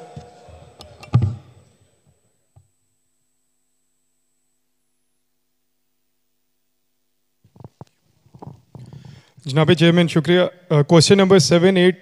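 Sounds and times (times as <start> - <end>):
microphone thump: 1.0 - 1.5.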